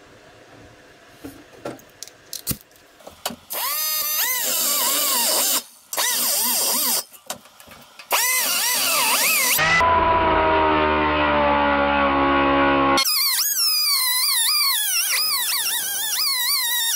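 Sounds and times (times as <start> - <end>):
pneumatic cut-off tool grinding metal: 3.5 - 7.2, 8.1 - 9.8, 13.0 - 16.9.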